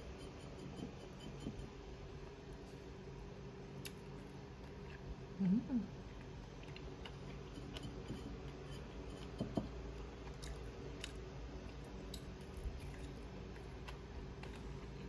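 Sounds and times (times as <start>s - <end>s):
low steady hum: 0.0s - 15.0s
faint chewing: 3.8s - 15.0s.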